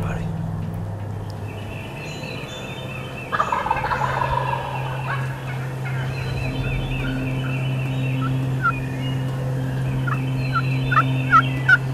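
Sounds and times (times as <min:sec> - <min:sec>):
songbirds singing: 0:00.0 - 0:11.9
turkey gobbling: 0:02.7 - 0:06.3, 0:10.9 - 0:11.8.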